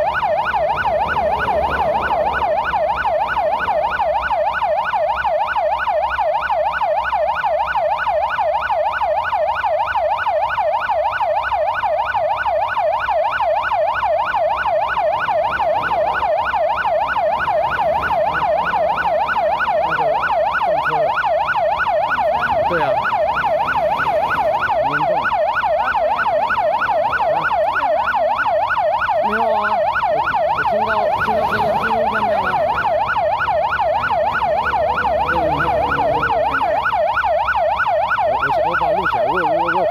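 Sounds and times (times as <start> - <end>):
police siren yelping: 0.0 - 39.9.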